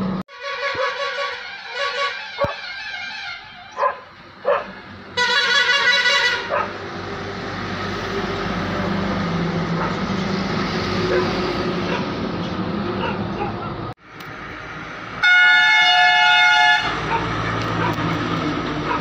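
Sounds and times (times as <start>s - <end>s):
diesel truck engine rumbling: 0.0s - 19.0s
loud horn blast: 0.3s - 3.8s, 5.1s - 6.6s, 15.2s - 17.5s
dog barking: 2.4s - 2.6s, 3.8s - 4.8s, 6.4s - 6.8s, 9.8s - 10.0s, 11.1s - 12.2s, 13.0s - 13.8s, 17.0s - 18.1s.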